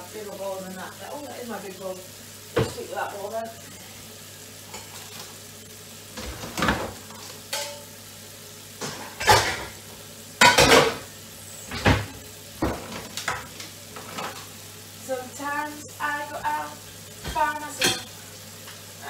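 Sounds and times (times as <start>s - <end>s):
dishes clattering in sink: 2.6s - 2.8s, 6.2s - 7.9s, 8.8s - 9.8s, 10.4s - 11.1s, 11.7s - 14.4s, 17.2s - 18.1s.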